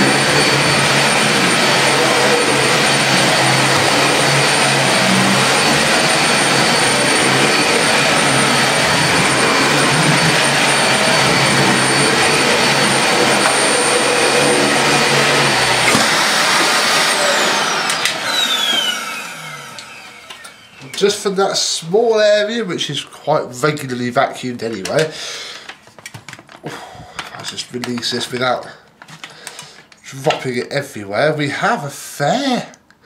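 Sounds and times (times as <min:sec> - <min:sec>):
vacuum motor spinning down: 0:00.0 - 0:21.2
vacuum cleaner running: 0:00.0 - 0:22.6.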